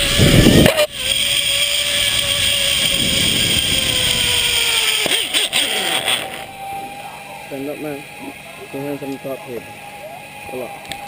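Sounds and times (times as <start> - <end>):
wind noise on microphone: 0.0 - 5.0
zipline pulleys whining on cable: 0.0 - 11.0.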